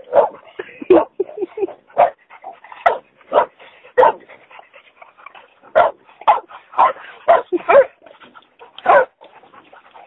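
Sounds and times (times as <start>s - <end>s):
puppy barking: 0.0s - 1.2s, 2.0s - 2.2s, 2.8s - 4.2s, 5.7s - 8.0s, 8.8s - 9.2s.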